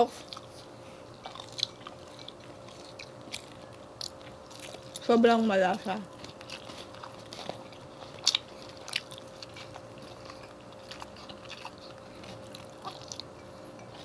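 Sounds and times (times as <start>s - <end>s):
crunching fried food: 0.0s - 14.0s
faint steady hum: 0.0s - 14.0s
wet chewing: 0.1s - 14.0s.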